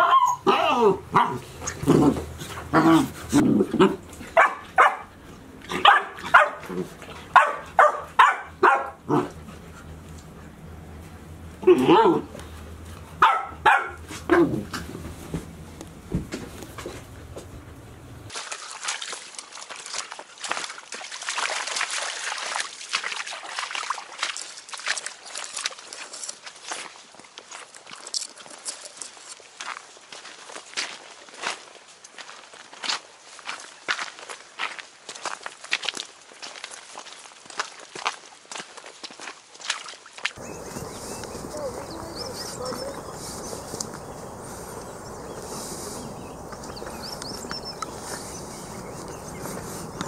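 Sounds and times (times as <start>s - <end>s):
puppies barking and yapping: 0.0s - 15.0s, 40.4s - 50.0s
dogs rustling through grass: 40.4s - 50.0s.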